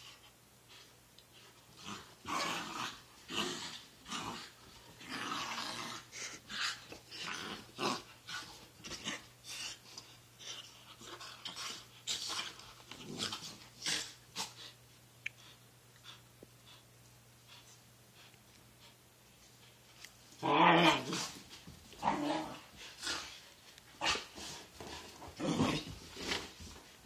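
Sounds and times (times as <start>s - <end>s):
dogs growling and snarling: 1.7s - 9.8s, 10.4s - 14.6s, 20.4s - 21.4s, 22.0s - 23.4s, 24.0s - 26.5s.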